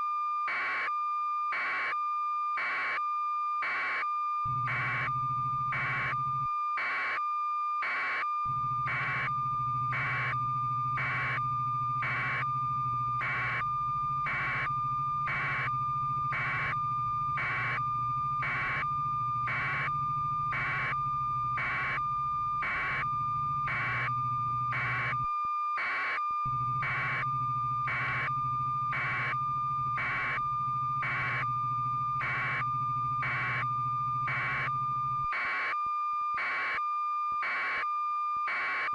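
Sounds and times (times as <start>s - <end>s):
low hum: 26.5s - 35.3s.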